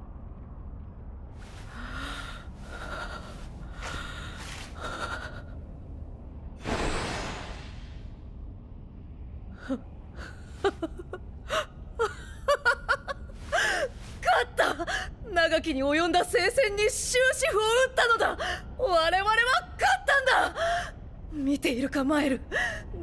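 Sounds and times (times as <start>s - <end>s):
woman panting: 1.5s - 5.6s, 13.4s - 15.1s.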